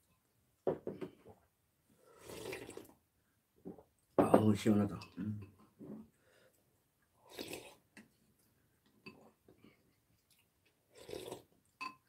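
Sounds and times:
slurping broth: 2.0s - 2.9s, 7.2s - 7.9s, 10.2s - 11.5s.

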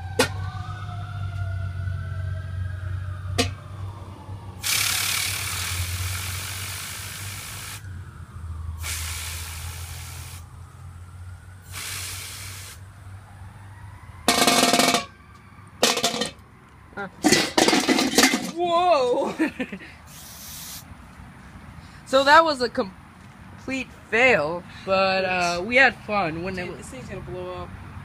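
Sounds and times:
aerosol can spraying: 20.1s - 20.8s.

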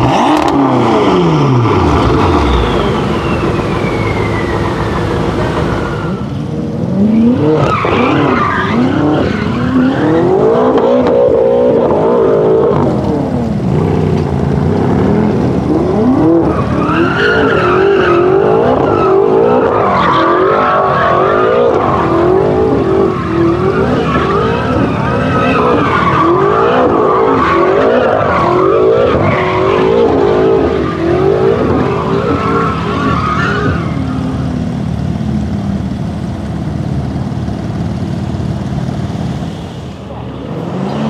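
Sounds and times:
car engine revving: 0.0s - 41.0s
tyres screeching: 1.4s - 6.5s.

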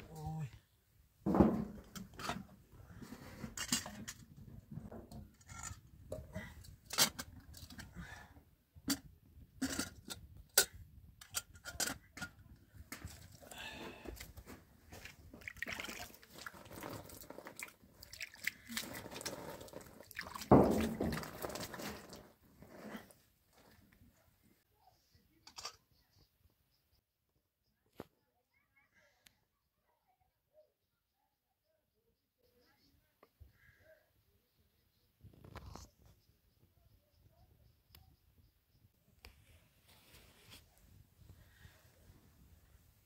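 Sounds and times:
water splashing and pouring: 15.0s - 22.4s.

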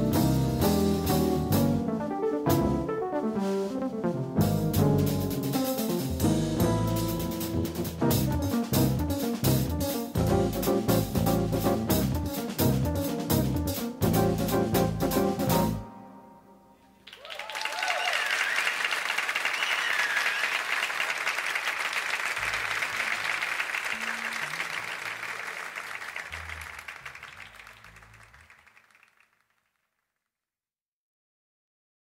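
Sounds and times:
audience applauding: 17.0s - 29.5s
whistles from audience: 17.1s - 28.0s.

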